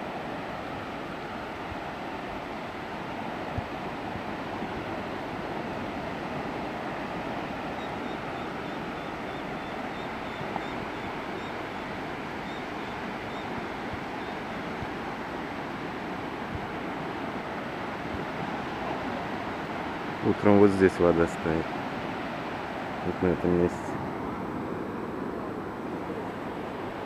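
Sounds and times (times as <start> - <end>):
sea surf breaking: 13.9 - 27.0.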